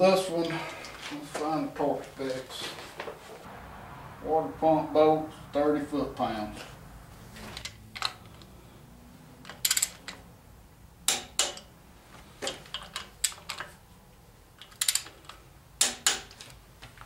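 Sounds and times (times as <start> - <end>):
metallic wrench clicks: 9.5 - 10.2, 14.6 - 16.3
quick ratchet clicks: 14.6 - 16.3.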